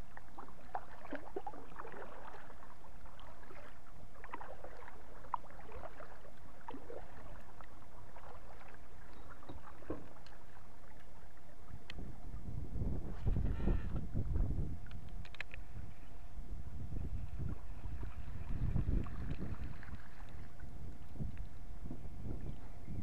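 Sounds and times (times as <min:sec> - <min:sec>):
kayak paddle splashing water: 0:00.0 - 0:12.1, 0:17.1 - 0:21.5.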